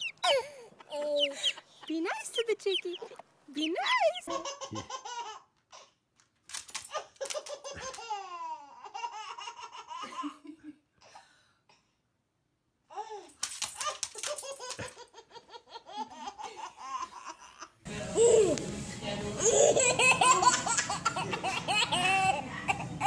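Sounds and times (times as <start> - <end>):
baby laughing: 0.0 - 5.9, 6.9 - 10.4, 13.8 - 18.6, 19.4 - 23.0.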